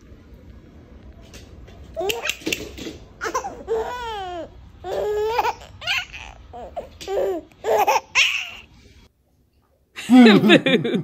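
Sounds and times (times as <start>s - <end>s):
baby laughing and squealing: 3.2s - 8.7s.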